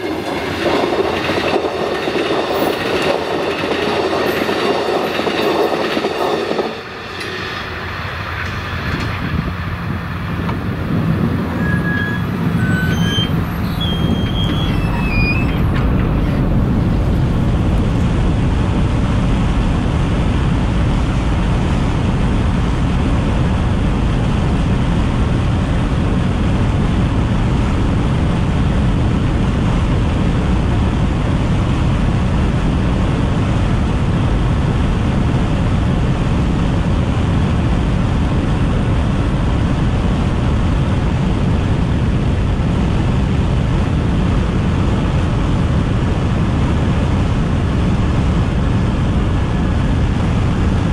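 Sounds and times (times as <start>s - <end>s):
car road and wind noise: 0.0s - 50.9s.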